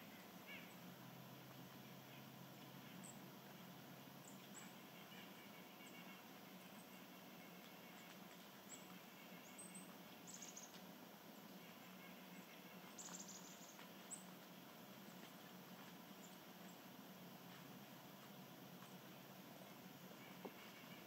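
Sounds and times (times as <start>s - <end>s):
outdoor hiss: 0.0s - 21.0s
high songbird chirps: 4.2s - 14.4s.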